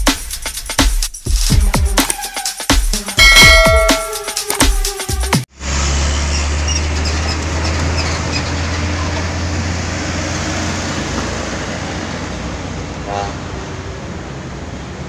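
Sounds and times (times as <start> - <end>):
road traffic noise: 3.2 - 15.0
truck engine passing: 5.5 - 15.0.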